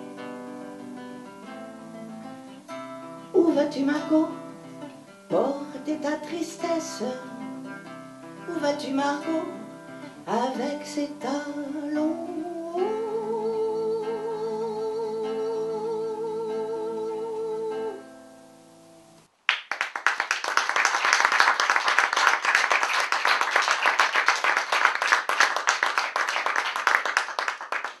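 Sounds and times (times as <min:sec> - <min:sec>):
strummed acoustic guitar: 0:00.0 - 0:18.9
woman singing with vibrato: 0:03.3 - 0:04.6, 0:05.3 - 0:07.7, 0:08.4 - 0:18.2
audience applause: 0:19.5 - 0:28.0.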